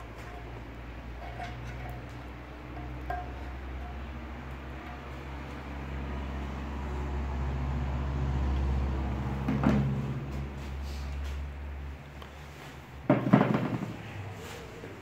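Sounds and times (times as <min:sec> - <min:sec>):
clunk: 0:00.0 - 0:04.1.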